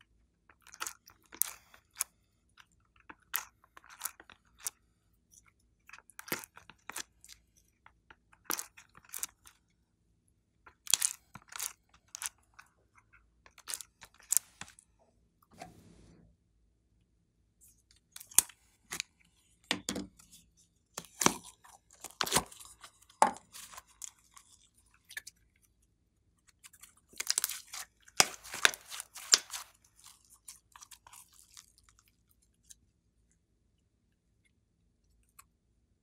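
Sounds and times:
slime clicks and crackles: 5.9 - 9.6, 10.7 - 12.7, 13.4 - 14.8, 21.0 - 25.4, 26.5 - 32.8.

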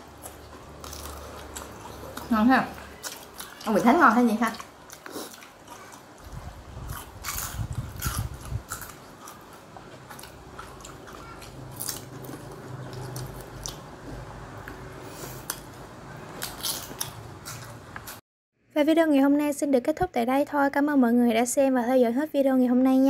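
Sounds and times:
person chewing crunchy food: 0.0 - 18.2.

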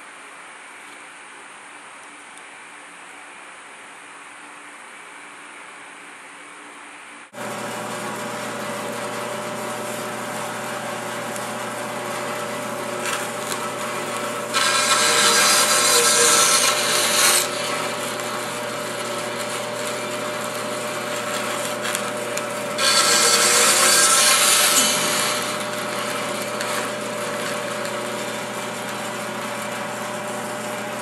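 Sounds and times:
band saw cutting wood: 7.4 - 31.0
band saw running: 7.4 - 31.0.

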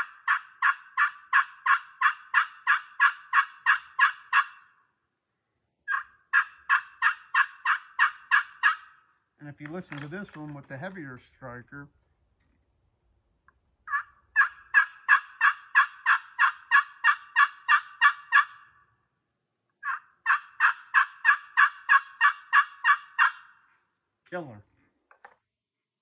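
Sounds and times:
turkey call yelps: 0.0 - 4.9, 5.8 - 9.2, 13.8 - 19.0, 19.8 - 23.7.

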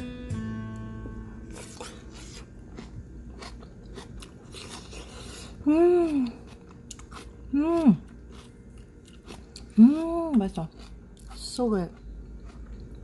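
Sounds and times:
person chewing food: 1.5 - 13.0
person humming mmm: 5.6 - 6.5, 7.5 - 8.1.

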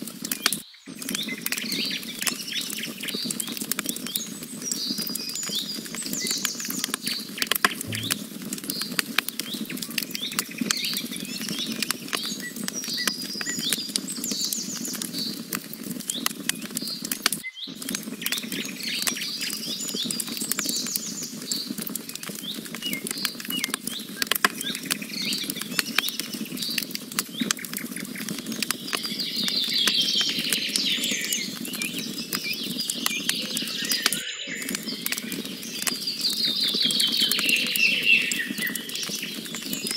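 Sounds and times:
campfire crackling and popping: 0.0 - 39.9
small birds chirping: 0.3 - 8.2, 16.1 - 39.9.

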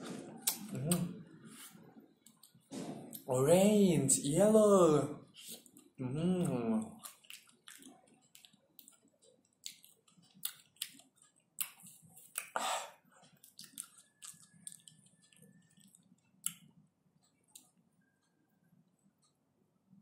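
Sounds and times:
mouth clicks and smacks eating: 0.2 - 3.3, 5.3 - 16.8.

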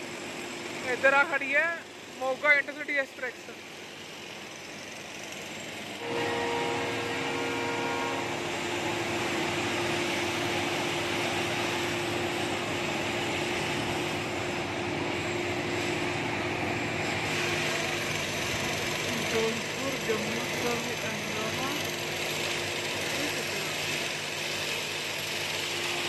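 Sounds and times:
locomotive running with whine: 0.0 - 26.0
train horn: 6.0 - 10.0.

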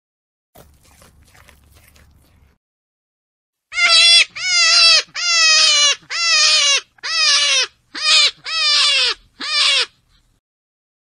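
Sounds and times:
animal calling: 3.7 - 10.2.

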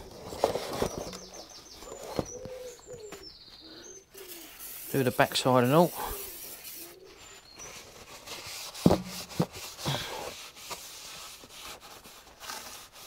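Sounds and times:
paper towel rubbing on metal: 4.2 - 13.0.

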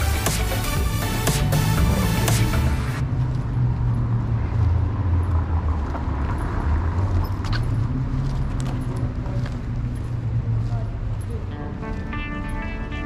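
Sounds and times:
electronic background music: 0.0 - 3.0, 11.5 - 13.0
city ambience rumble: 0.0 - 13.0.

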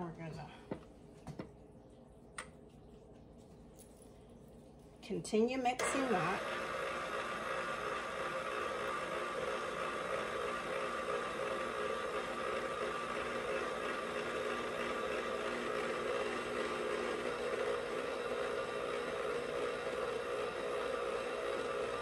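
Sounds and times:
stand mixer motor whirring: 5.8 - 22.0.

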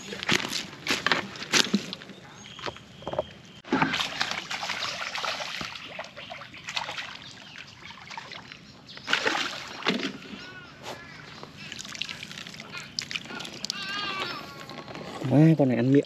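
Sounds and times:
fish thrashing water splashing: 3.6 - 8.5, 9.1 - 10.3.

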